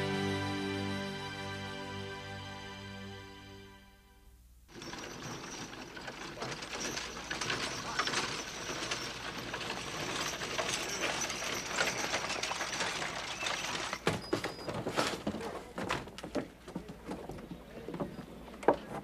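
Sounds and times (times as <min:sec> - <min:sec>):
hooves clip-clopping: 0:04.7 - 0:19.0
wheels and harness rattling: 0:04.7 - 0:19.0.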